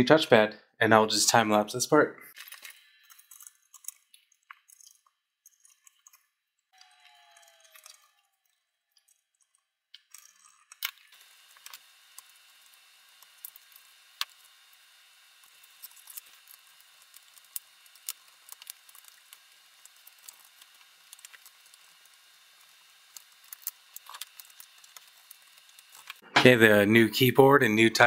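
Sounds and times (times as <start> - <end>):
tools and plastic parts clicking: 2.4 - 6.3, 7.4 - 12.3, 15.4 - 26.2.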